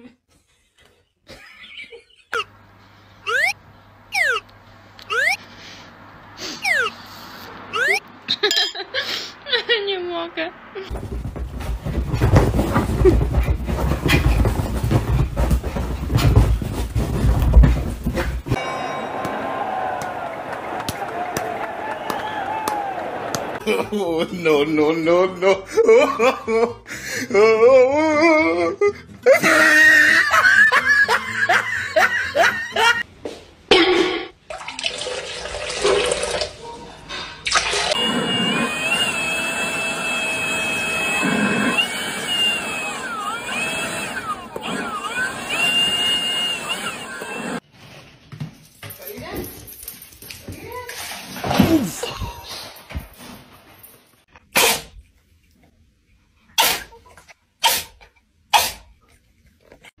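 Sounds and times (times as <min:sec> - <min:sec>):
toilet flushing: 0:34.6 - 0:36.6
cat sneezing: 0:54.5 - 0:55.0, 0:56.6 - 0:57.0, 0:57.6 - 0:58.9.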